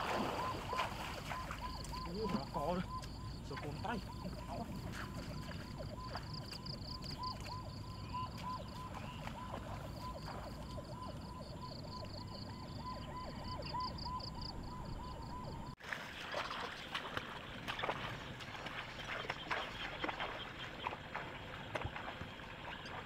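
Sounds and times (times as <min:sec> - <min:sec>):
chorus of calling animals: 0:00.0 - 0:15.7.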